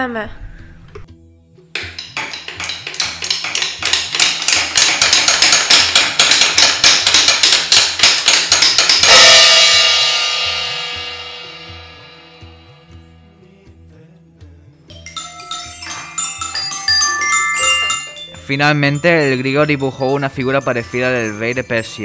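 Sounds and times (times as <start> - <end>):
rapid percussive strikes: 1.7 - 13.2, 14.9 - 22.0
cymbal crash: 8.9 - 13.2.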